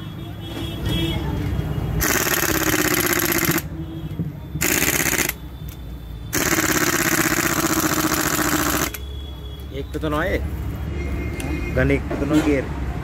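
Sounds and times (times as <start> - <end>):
pneumatic impact wrench hammering: 2.0 - 3.7, 4.6 - 9.0.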